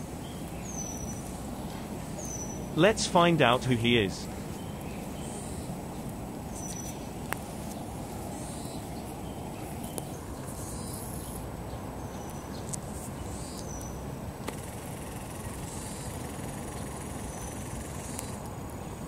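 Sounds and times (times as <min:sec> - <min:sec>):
steady low rumble: 0:00.0 - 0:12.5.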